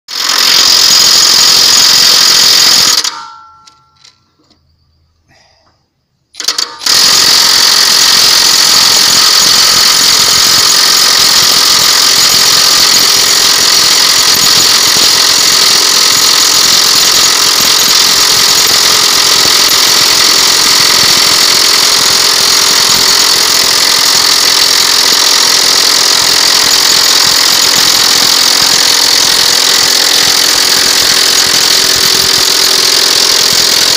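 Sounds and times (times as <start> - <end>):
impact wrench hammering: 0.1 - 4.0, 6.4 - 33.9.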